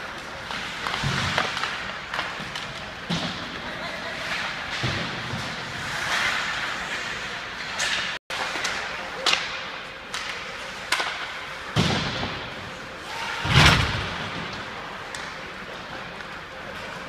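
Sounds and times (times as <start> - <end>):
hockey sticks cracking on puck: 0.0 - 3.6, 4.2 - 12.0, 14.4 - 16.4.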